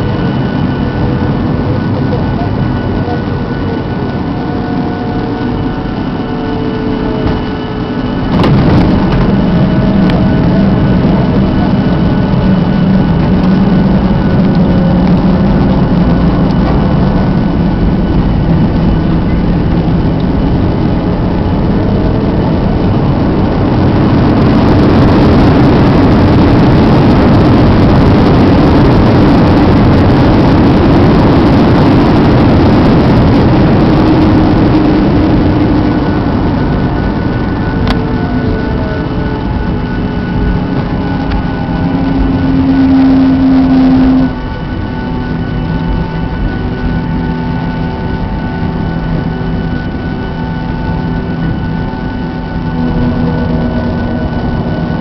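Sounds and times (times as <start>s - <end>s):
rumble of wheels and engines: 0.0s - 55.0s
airliner touchdown knock: 8.3s - 10.4s.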